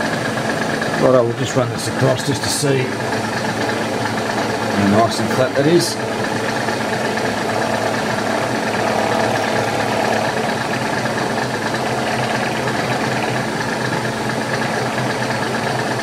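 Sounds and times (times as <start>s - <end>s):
milling machine motor hum: 5.9s - 16.0s
cutter cutting steel: 7.6s - 13.5s.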